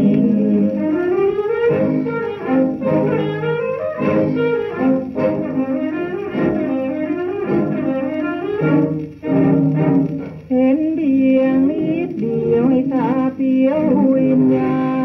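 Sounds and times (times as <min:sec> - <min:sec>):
old band recording on turntable: 0:00.0 - 0:15.0.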